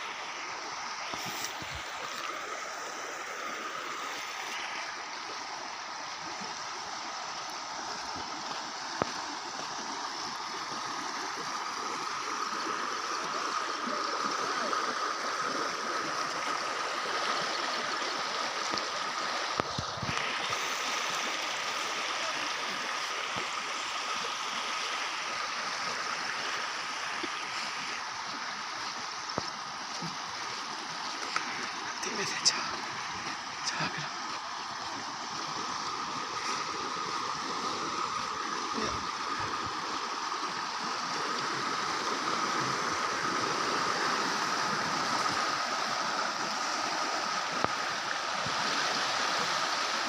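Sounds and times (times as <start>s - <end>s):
floodwater rushing and gurgling: 0.0s - 50.0s.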